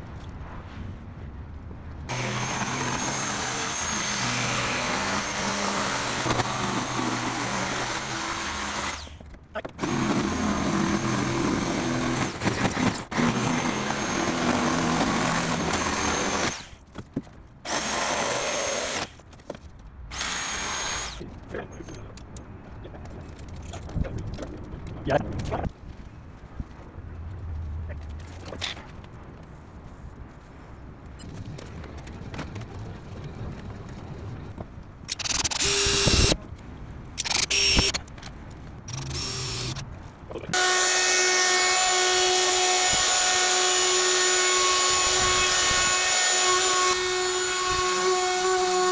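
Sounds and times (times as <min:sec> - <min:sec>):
jigsaw cutting plywood: 0:02.1 - 0:09.1, 0:09.7 - 0:16.7, 0:17.7 - 0:19.1, 0:20.1 - 0:21.2, 0:38.9 - 0:39.8, 0:40.5 - 0:48.9.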